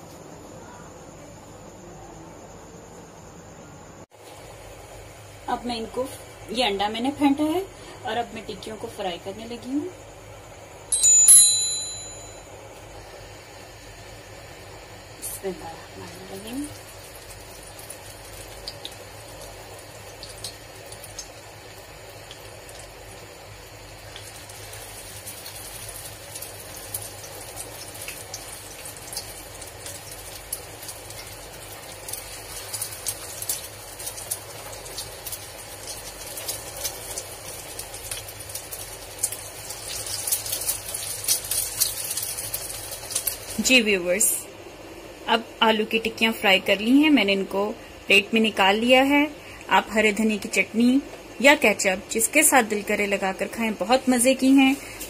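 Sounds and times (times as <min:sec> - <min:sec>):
cutlets sizzling and crackling in oil: 0:15.2 - 0:44.0.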